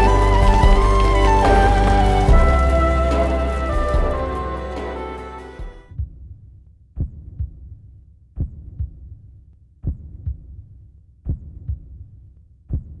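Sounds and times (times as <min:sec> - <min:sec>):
heartbeat thumps: 0:00.0 - 0:04.4, 0:07.0 - 0:07.8, 0:08.4 - 0:09.2, 0:09.8 - 0:10.6, 0:11.2 - 0:12.0, 0:12.7 - 0:13.0.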